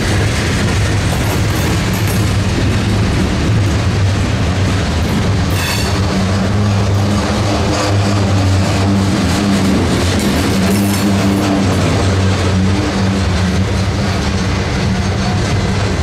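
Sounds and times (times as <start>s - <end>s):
diesel locomotive engine drone: 0.0s - 16.0s
rail noise: 0.0s - 16.0s.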